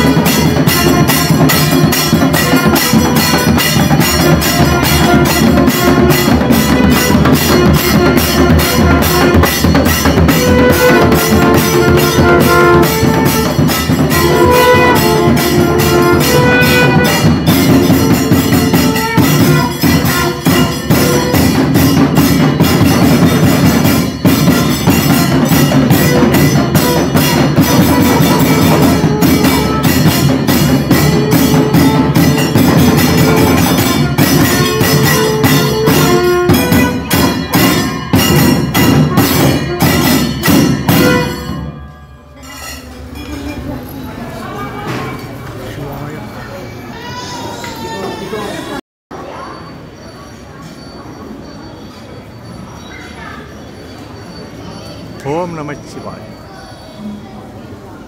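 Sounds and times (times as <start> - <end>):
frame drums beaten fast: 0.0 - 41.8
wind instrument melody: 0.0 - 42.8.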